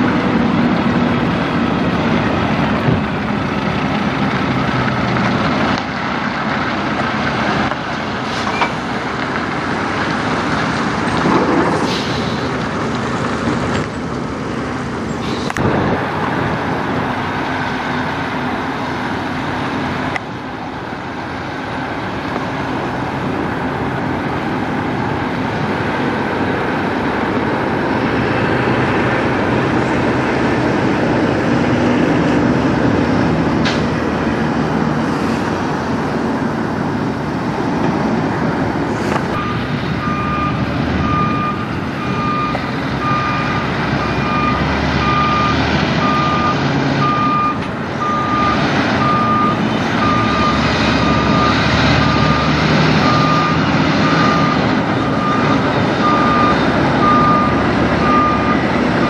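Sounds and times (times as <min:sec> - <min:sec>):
diesel truck engine running: 0:00.0 - 0:59.0
backup alarm beeping: 0:39.4 - 0:52.5.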